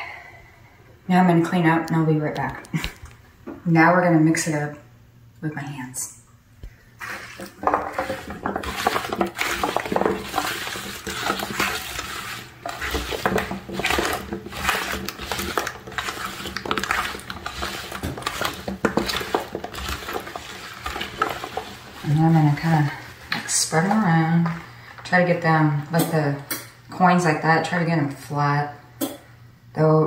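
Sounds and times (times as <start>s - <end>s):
carrot pieces clattering in dish: 7.4s - 22.0s.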